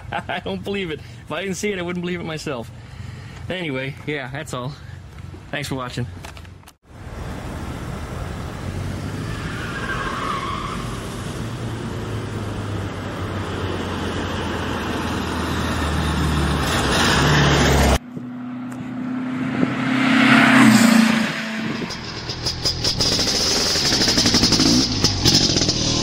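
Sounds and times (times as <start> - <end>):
car engine and tyres passing: 6.8 - 26.0
engine humming: 6.9 - 26.0.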